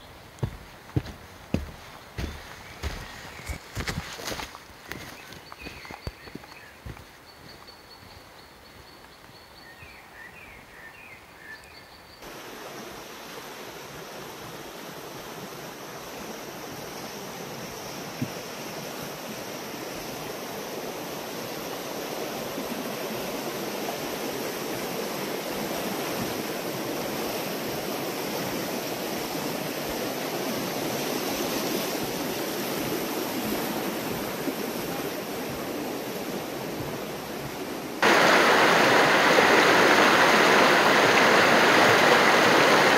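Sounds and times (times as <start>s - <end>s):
river water rushing: 0.0s - 7.6s, 12.2s - 42.9s
bird chirps: 5.0s - 12.2s.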